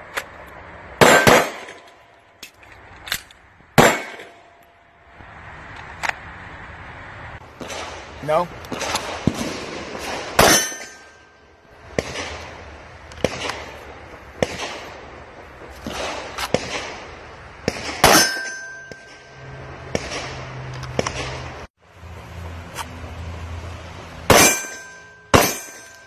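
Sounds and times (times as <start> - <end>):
loud gunshots with metallic ring: 1.0 - 1.8, 3.8 - 4.4, 8.8 - 11.2, 17.7 - 20.3, 24.3 - 26.0.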